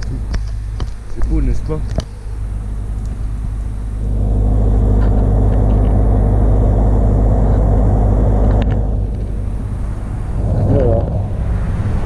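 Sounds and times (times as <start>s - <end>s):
generator humming: 0.0s - 12.0s
loud rushing noise: 3.8s - 12.0s.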